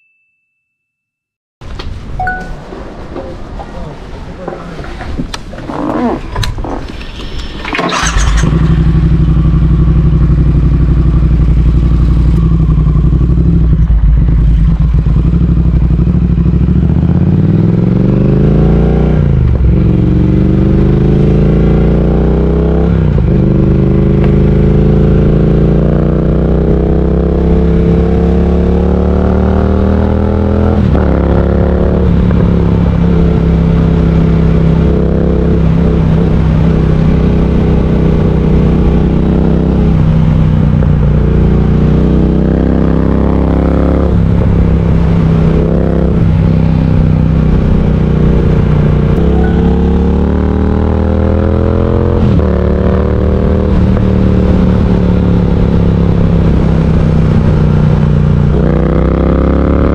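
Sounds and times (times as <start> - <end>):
motorcycle engine accelerating: 7.6 - 59.9.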